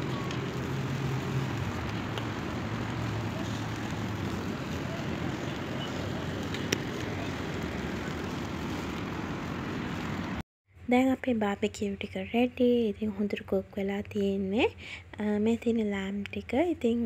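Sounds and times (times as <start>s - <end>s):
low rumble with hiss: 0.0s - 17.0s.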